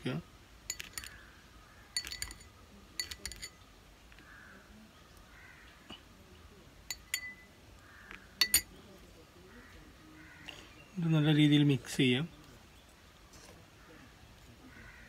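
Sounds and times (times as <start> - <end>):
teaspoon clinking on glass bowl: 0.7 - 1.2, 2.0 - 3.7, 6.9 - 7.5, 8.4 - 8.7.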